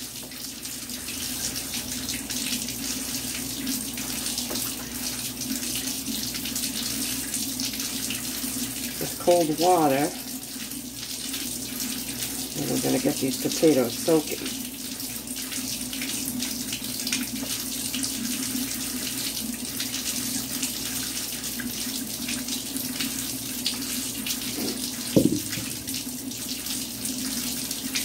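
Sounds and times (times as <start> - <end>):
tap water running into bowl: 0.0 - 28.0
short knock: 24.6 - 25.8.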